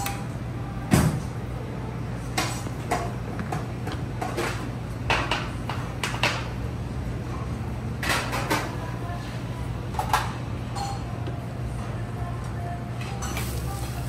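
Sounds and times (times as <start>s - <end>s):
utensils clinking on dishes: 2.2s - 6.5s, 9.9s - 11.4s, 13.0s - 14.0s.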